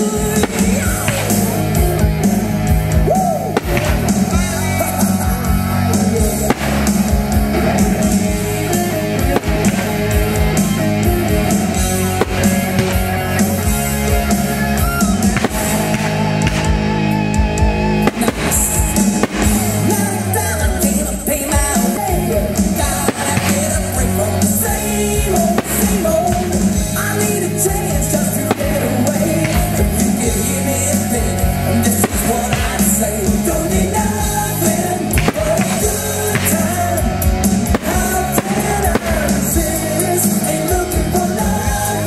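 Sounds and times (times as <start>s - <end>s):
drums: 0.0s - 42.0s
guitar: 0.0s - 42.0s
person singing: 18.1s - 42.0s.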